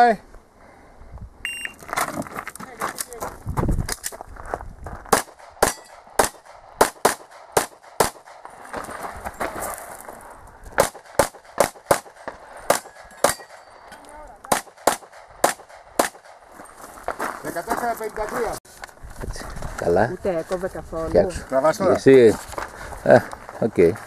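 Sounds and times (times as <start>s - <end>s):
handgun shots: 5.1s - 8.4s, 10.8s - 13.7s, 14.5s - 16.4s.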